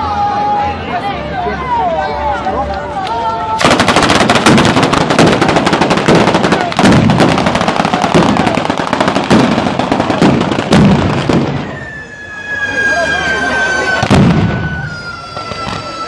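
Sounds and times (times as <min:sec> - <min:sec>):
firecrackers banging and crackling: 0:03.0 - 0:12.4, 0:13.9 - 0:16.0
loud firecracker bangs: 0:03.6 - 0:12.2, 0:14.0 - 0:16.0.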